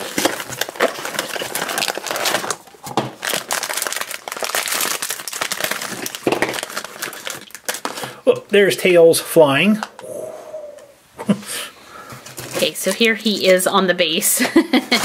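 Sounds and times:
foil bag crinkling: 0:00.0 - 0:08.2, 0:12.2 - 0:13.6.

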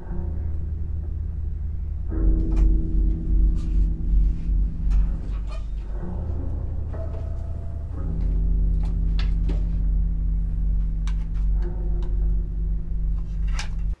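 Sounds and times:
bowed banjo sustained note: 0:00.0 - 0:14.0
deep low hum: 0:00.0 - 0:14.0.

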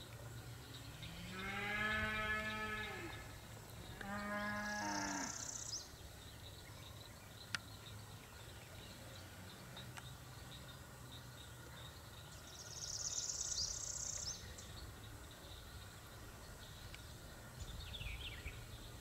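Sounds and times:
cow mooing: 0:01.2 - 0:03.2, 0:04.0 - 0:05.4.

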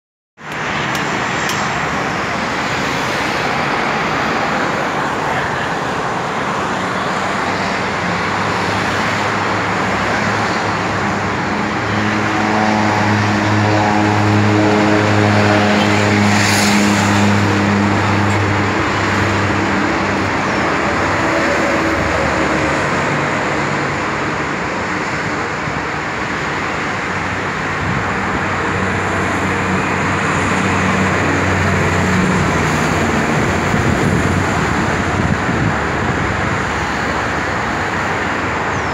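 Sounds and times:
constant rushing noise: 0:00.4 - 0:38.9
propeller airplane engine drone: 0:00.4 - 0:38.9.

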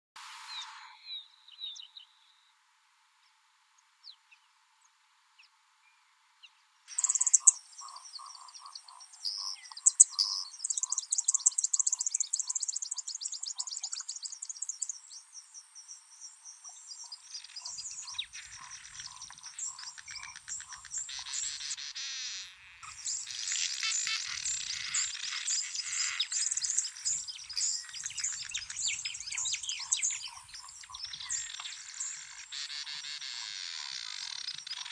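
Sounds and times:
buzzy bird calls: 0:06.9 - 0:14.7, 0:17.0 - 0:34.9
bird twittering chatter: 0:06.9 - 0:15.0, 0:16.6 - 0:34.9.

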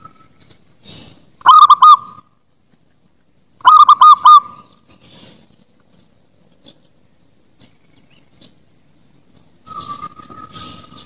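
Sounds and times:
dove cooing: 0:01.4 - 0:02.2, 0:03.6 - 0:05.4.

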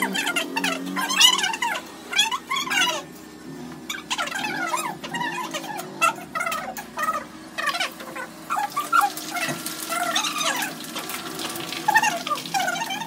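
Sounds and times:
oil crackling and spitting: 0:07.9 - 0:13.0.

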